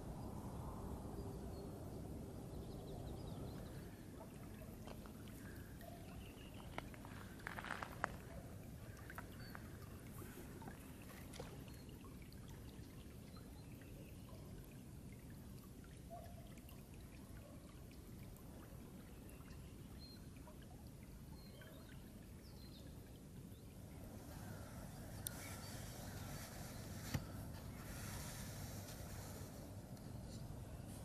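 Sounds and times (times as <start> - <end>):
ripples lapping on pebbly shore: 3.6 - 12.8, 23.8 - 30.2.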